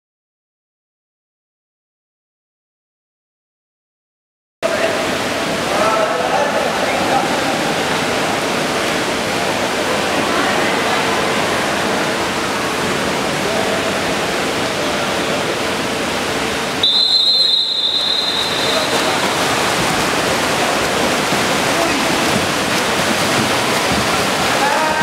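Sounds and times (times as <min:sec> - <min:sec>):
referee's whistle long blast: 0:16.8 - 0:19.3.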